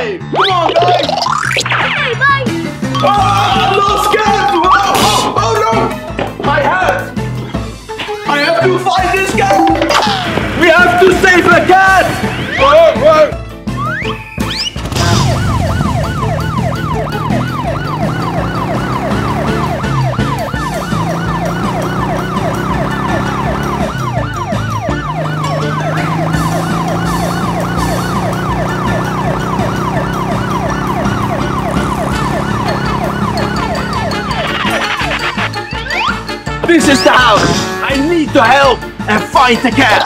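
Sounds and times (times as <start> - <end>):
police siren yelping: 13.7 - 37.4.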